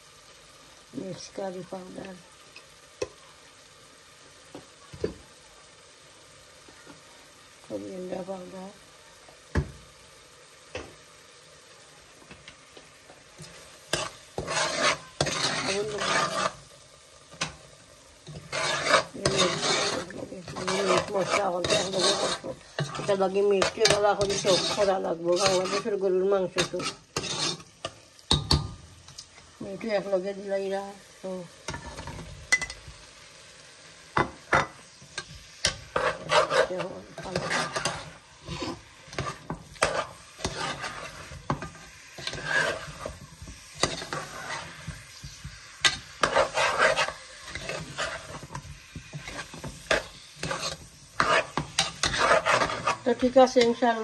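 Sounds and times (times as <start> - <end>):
onions sizzling: 0.0 - 54.0
metal spoon scraping a pot: 13.4 - 16.7, 18.2 - 28.6, 34.5 - 54.0.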